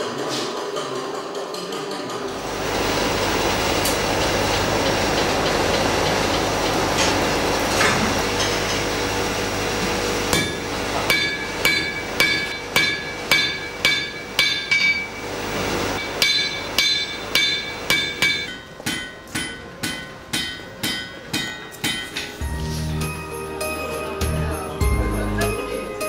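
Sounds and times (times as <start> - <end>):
hammer striking iron on anvil: 10.3 - 15.2, 16.0 - 22.4.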